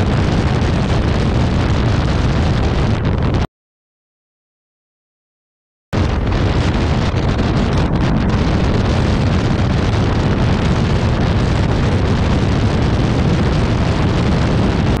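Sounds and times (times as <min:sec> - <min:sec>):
road and motorcycle noise: 0:00.0 - 0:03.5, 0:06.0 - 0:15.0
wind buffeting microphone: 0:00.0 - 0:03.5, 0:06.0 - 0:15.0.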